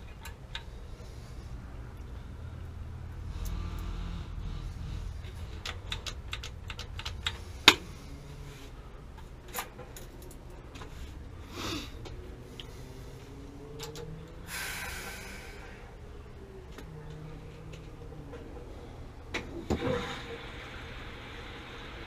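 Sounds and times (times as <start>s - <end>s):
tools clicking on metal parts: 5.1s - 7.9s.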